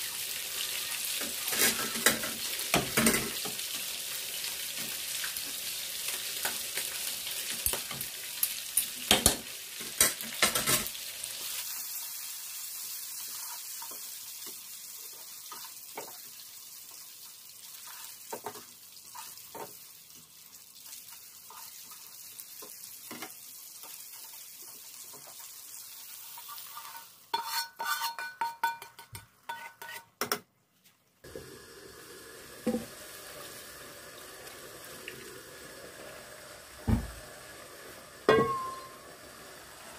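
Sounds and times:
food sizzling: 0.0s - 30.0s, 31.2s - 39.9s
ladle scraping metal pot: 26.4s - 30.1s.

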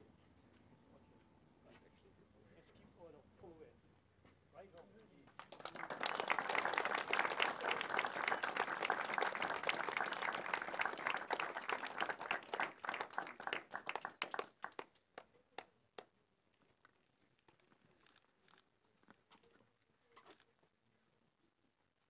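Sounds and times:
crowd applauding: 5.3s - 15.0s.

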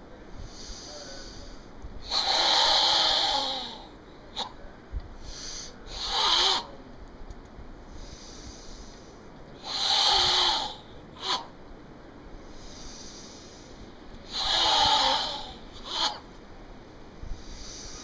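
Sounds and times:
forced breathing through throat: 0.3s - 4.6s, 5.2s - 6.7s, 7.9s - 11.6s, 12.4s - 16.3s, 17.2s - 18.0s.

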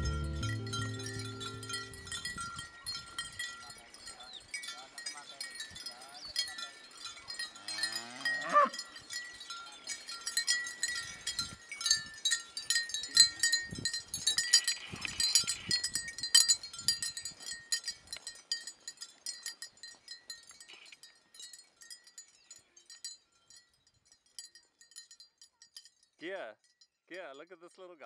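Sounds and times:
chime-like clinks: 0.0s - 26.9s
cow mooing: 7.7s - 8.8s.

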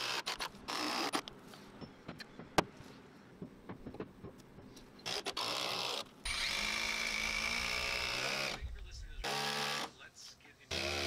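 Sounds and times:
cordless drill driving into wood: 5.0s - 8.6s.

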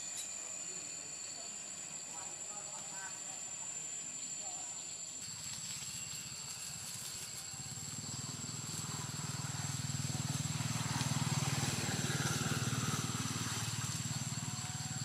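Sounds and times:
engine running low rumble: 5.5s - 15.0s.

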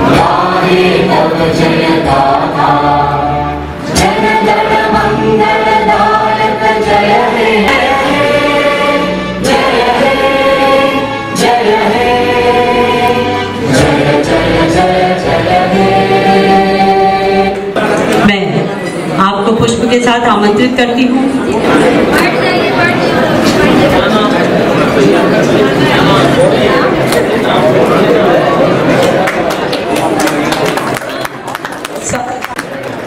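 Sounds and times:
choir singing with accompaniment: 0.0s - 18.2s.

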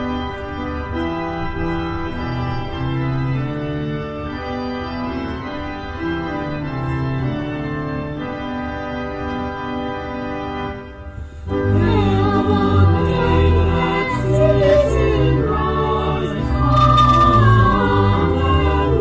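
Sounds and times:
organ playing slow chords: 0.0s - 19.0s.

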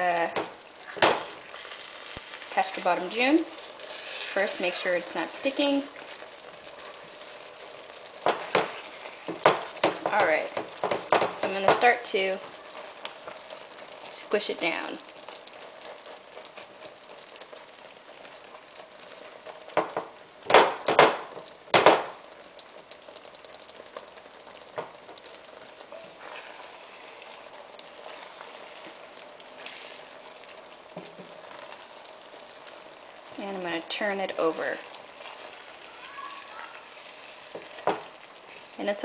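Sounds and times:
spatula squishing eggplants: 0.0s - 14.2s, 22.3s - 39.0s
sauce simmering and bubbling: 0.0s - 39.0s
spatula knocking against pan: 8.2s - 12.0s, 19.7s - 22.2s, 37.6s - 38.1s.

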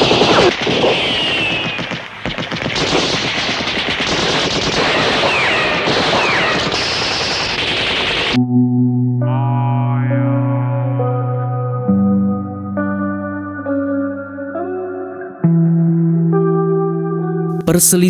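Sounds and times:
rapid machine-gun fire: 0.0s - 8.4s
high whistles: 0.2s - 2.2s
droning music chord: 8.4s - 17.5s.

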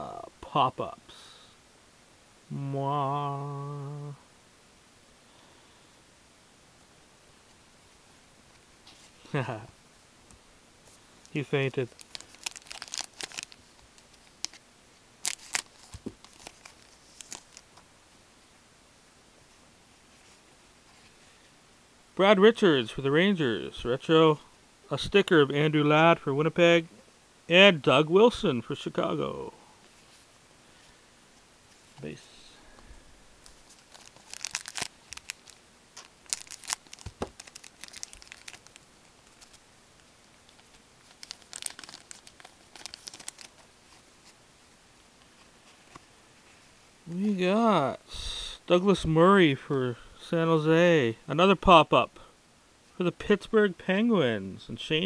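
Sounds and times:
faint room hiss: 0.0s - 55.0s
cards shuffling and clicking: 33.5s - 38.7s, 40.5s - 43.7s.

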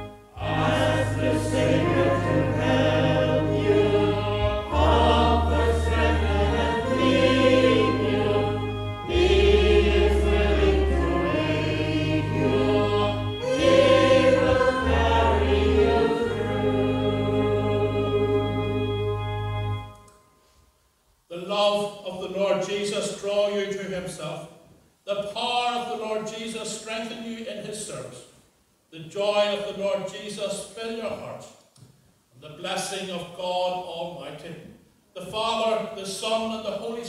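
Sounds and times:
choir singing a hymn: 0.0s - 19.9s
held bass notes: 0.0s - 20.1s.

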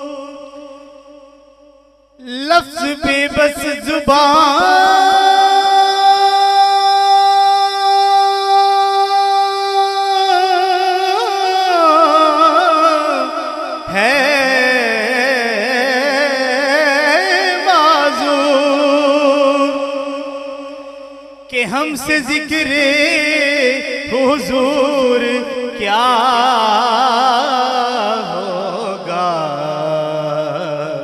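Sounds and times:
man singing unaccompanied: 0.0s - 1.3s, 2.2s - 20.9s, 21.5s - 31.0s.

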